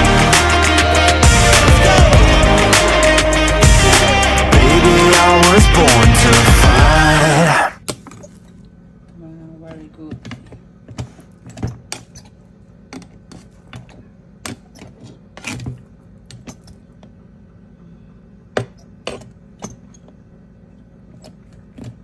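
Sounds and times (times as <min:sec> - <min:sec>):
low steady hum: 0:07.8 - 0:22.0.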